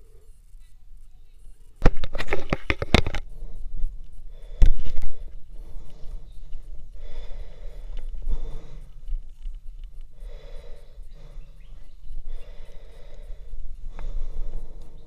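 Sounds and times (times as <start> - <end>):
person breathing hard: 3.2 - 15.0.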